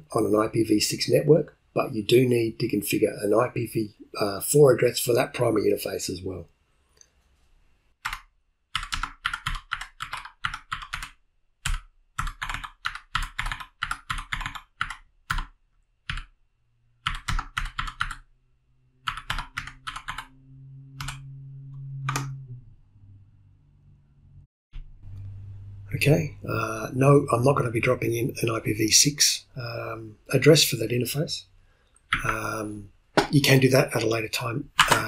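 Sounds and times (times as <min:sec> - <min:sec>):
keyboard typing: 0:08.0 - 0:16.4, 0:17.0 - 0:18.3, 0:19.0 - 0:21.3, 0:22.0 - 0:22.4, 0:32.1 - 0:32.5, 0:34.7 - 0:35.0.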